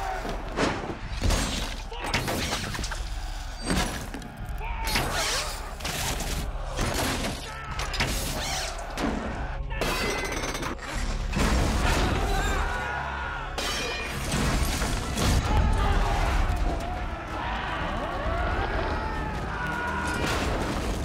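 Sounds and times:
background music: 0.0 - 21.0
men shouting: 3.0 - 8.0, 12.0 - 13.6, 15.4 - 20.4.

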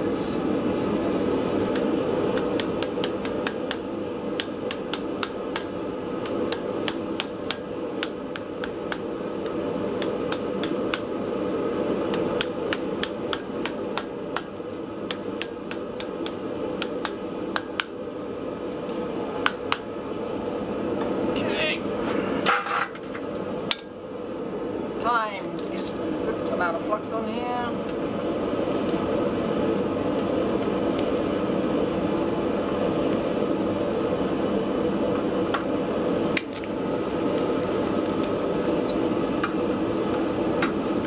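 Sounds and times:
forge running: 0.0 - 41.0
flux ticking and crackling: 1.7 - 18.0.

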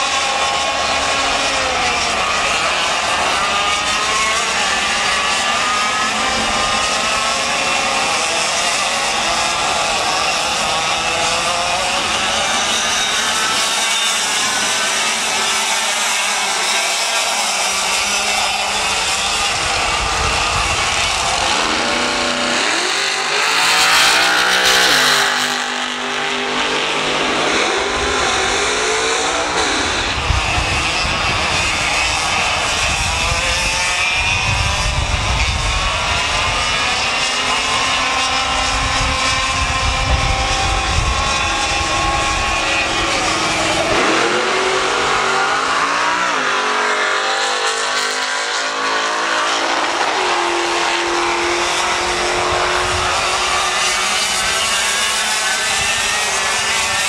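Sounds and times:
kart engines racing: 0.0 - 57.0.

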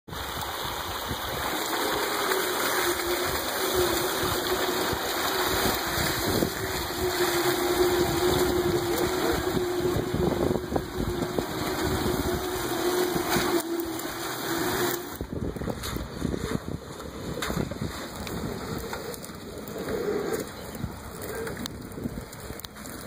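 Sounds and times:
tyres churning and splashing mud: 0.1 - 23.0
electric motor whine: 1.3 - 15.6.

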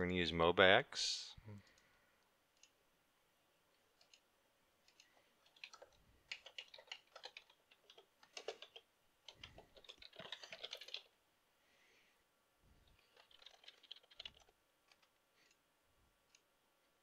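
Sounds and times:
keyboard typing: 3.7 - 11.1, 12.8 - 15.6.

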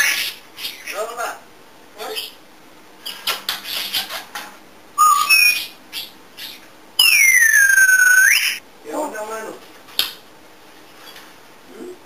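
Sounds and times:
parrot whistling: 5.0 - 8.6.

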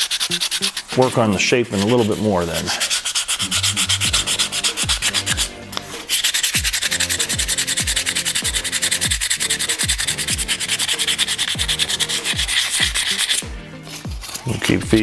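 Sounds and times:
hand sanding wood: 0.0 - 15.0
electronic music with drum beat: 3.4 - 15.0.

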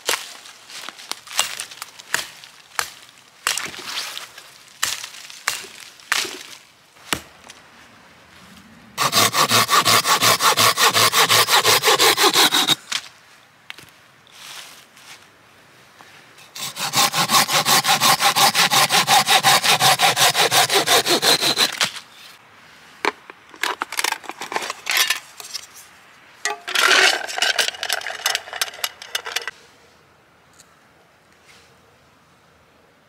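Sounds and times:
saw cutting wood: 9.0 - 12.8, 16.5 - 21.9
clicks and knocks of handling: 26.5 - 29.5.

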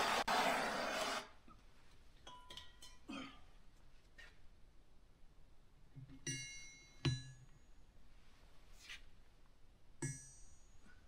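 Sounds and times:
metal clinking on anvil: 2.2 - 3.1.

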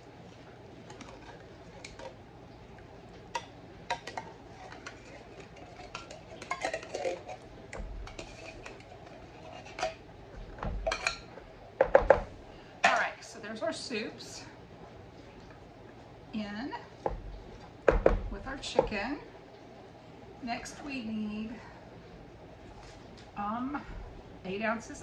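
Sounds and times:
spoon scraping inside tin can: 4.5 - 7.5, 8.1 - 10.0.

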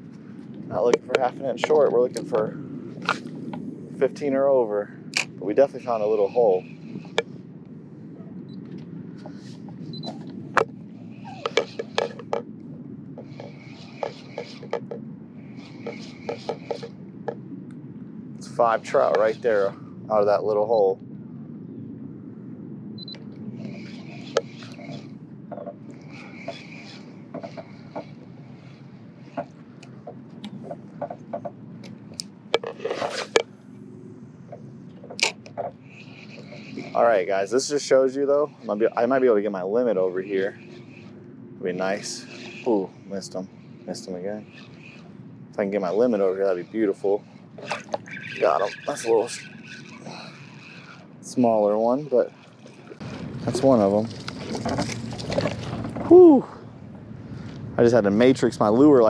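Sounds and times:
steady low rumble: 0.0 - 59.0
spinning reel cranking: 44.4 - 45.1, 45.7 - 55.5.

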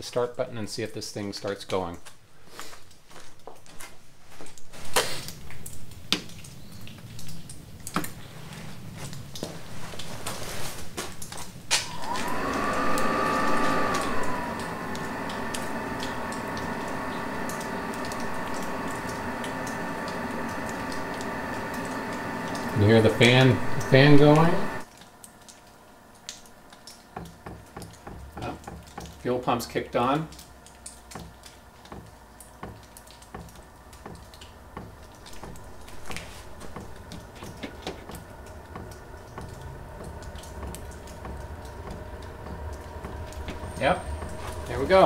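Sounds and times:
heater blower fan whine: 4.8 - 45.0
light irregular ticking: 11.2 - 45.0.

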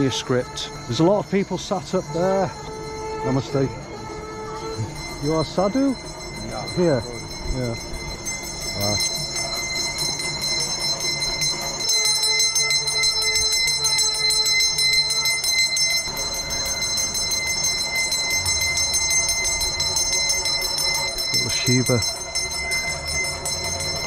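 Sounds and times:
bell rung rapidly: 0.0 - 24.0.

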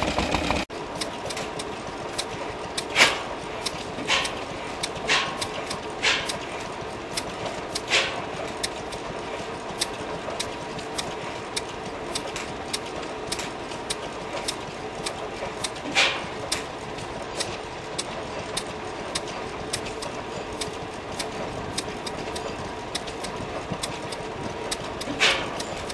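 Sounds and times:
stationary engine running slowly: 0.0 - 25.9
valve gear clicks: 0.0 - 25.9.

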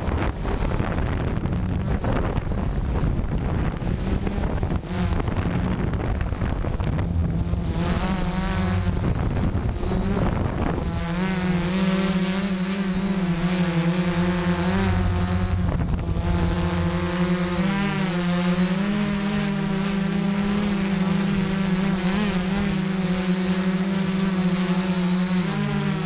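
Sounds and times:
drone motors buzzing: 0.0 - 26.0
thin steady high tone: 7.1 - 26.0.

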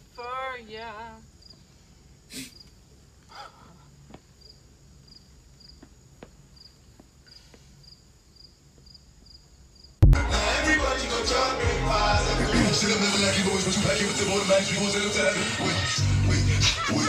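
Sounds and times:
loud music: 10.0 - 17.0.

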